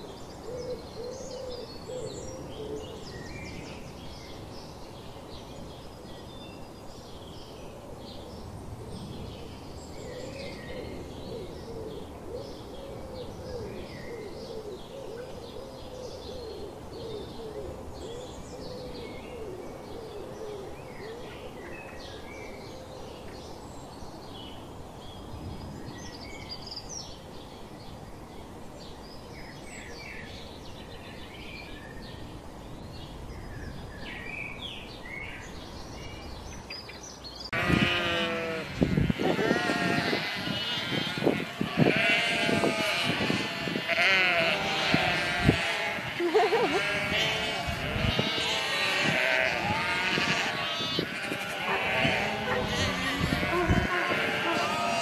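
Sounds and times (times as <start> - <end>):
outdoor background hiss: 0.0 - 55.0
small birds chirping: 20.5 - 55.0
sheep bleating: 37.5 - 55.0.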